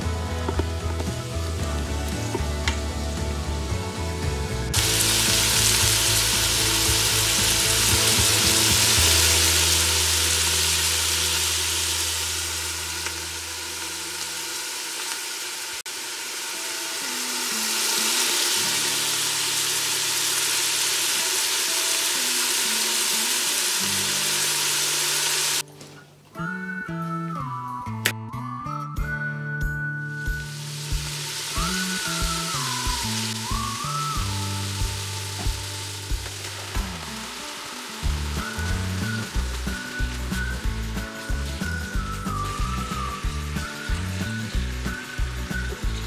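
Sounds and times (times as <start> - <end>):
onions sizzling in a pot: 0.0 - 25.6, 30.3 - 46.0.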